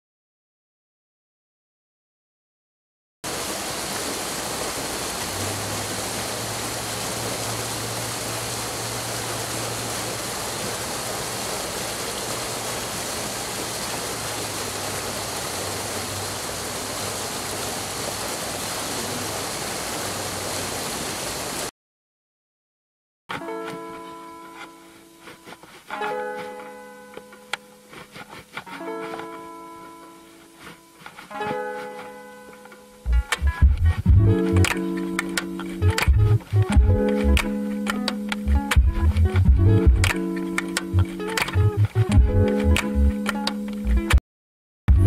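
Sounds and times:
stream rushing over rocks: 3.3s - 21.7s, 34.3s - 43.6s.

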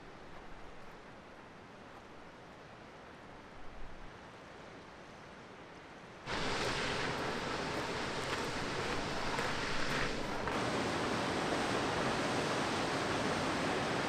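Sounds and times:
river water rushing: 5.4s - 14.0s.

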